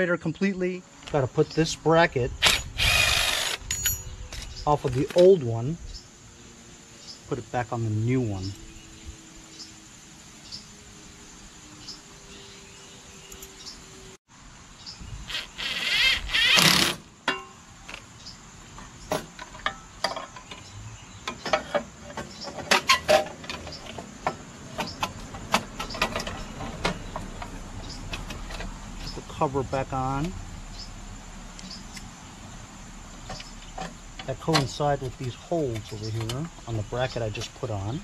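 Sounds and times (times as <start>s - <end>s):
crickets chirping: 0.0s - 38.0s.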